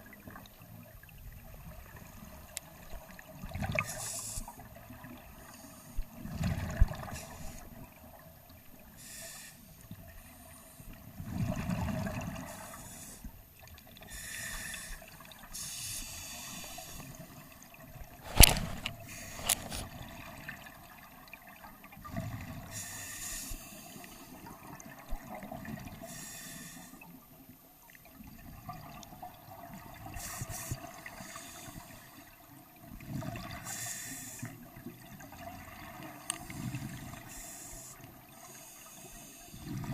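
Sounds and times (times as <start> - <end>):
regulator inhale hiss: 3.8 - 4.7, 5.5 - 6.2, 7.1 - 7.7, 9.0 - 11.0, 12.5 - 13.4, 14.0 - 17.3, 18.2 - 19.9, 22.7 - 24.4, 26.0 - 27.1, 30.1 - 32.4, 33.6 - 34.7, 36.4 - 39.9.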